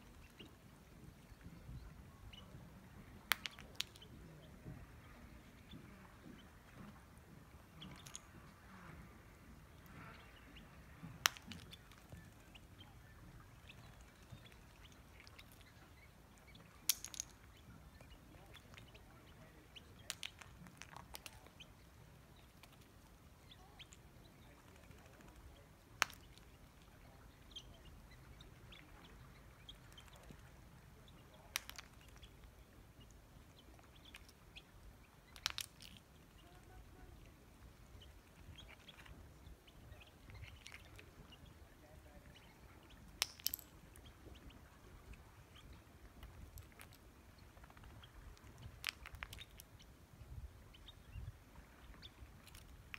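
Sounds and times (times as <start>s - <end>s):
faint steady background: 0.0s - 52.9s
bill and shell tapping on stone: 16.9s - 17.4s, 43.2s - 43.8s.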